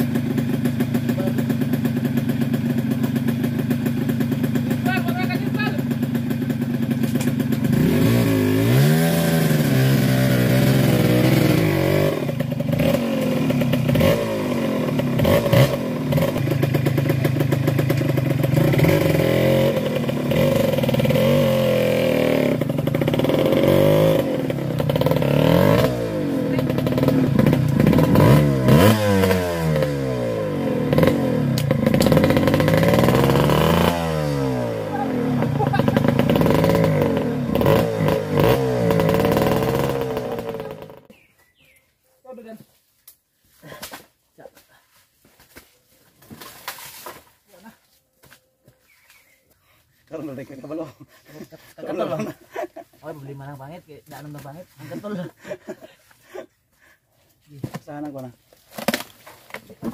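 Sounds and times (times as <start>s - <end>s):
dirt bike engine revving: 0.0s - 41.3s.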